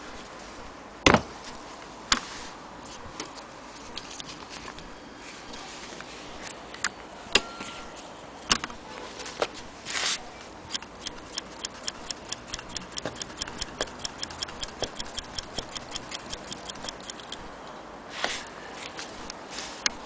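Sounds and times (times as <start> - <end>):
sewing machine ticking: 10.7 - 17.5.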